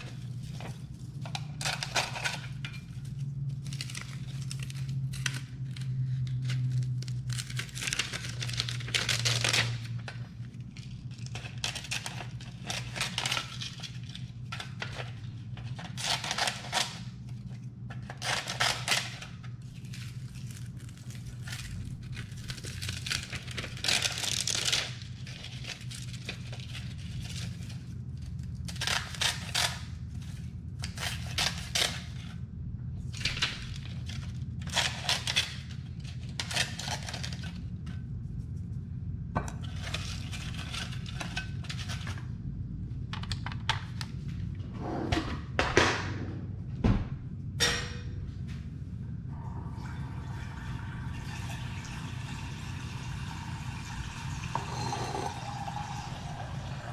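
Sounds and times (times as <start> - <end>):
low steady hum: 0.0 - 56.9.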